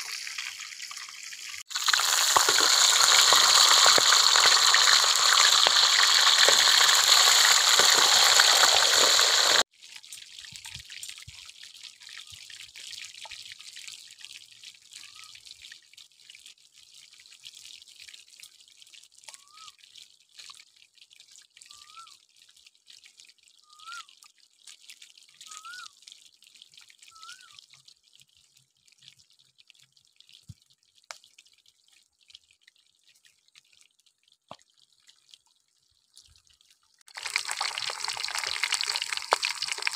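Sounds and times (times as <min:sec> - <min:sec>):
fish sizzling in hot oil: 0:00.0 - 0:11.3, 0:34.2 - 0:39.9
small crackles: 0:00.1 - 0:11.4, 0:21.9 - 0:39.9.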